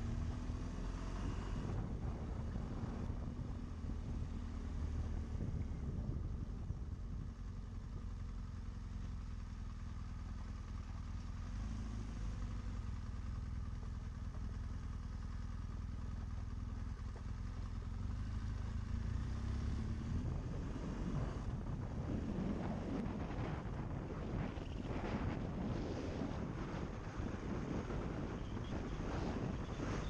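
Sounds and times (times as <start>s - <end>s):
motorcycle engine at low revs: 0.0s - 30.0s.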